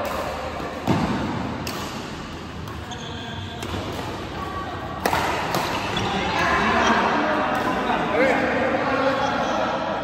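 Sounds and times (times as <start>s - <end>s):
rackets hitting shuttlecock: 0.0s - 6.4s, 7.3s - 8.0s.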